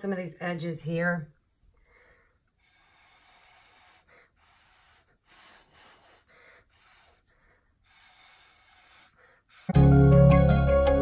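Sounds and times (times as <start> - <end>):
short puffs of breath: 1.8 - 9.8.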